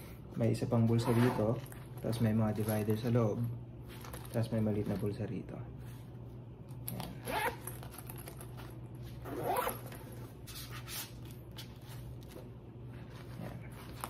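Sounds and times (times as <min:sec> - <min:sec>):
steady low hum: 0:00.0 - 0:14.0
zippers being pulled open: 0:00.9 - 0:01.7, 0:06.8 - 0:08.4, 0:09.2 - 0:10.1.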